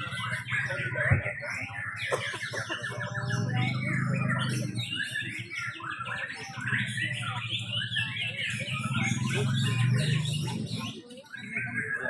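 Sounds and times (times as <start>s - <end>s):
birds singing: 0.0s - 12.0s.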